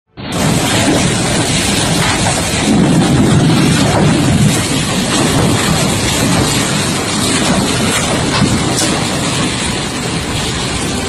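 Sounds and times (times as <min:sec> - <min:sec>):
tornado winds rushing: 0:00.2 - 0:11.0
wind battering microphone: 0:00.2 - 0:11.0.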